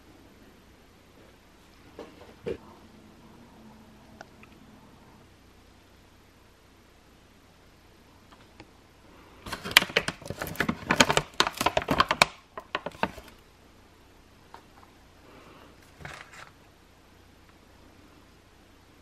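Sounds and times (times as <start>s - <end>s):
plastic pouch crinkling: 9.4s - 13.4s.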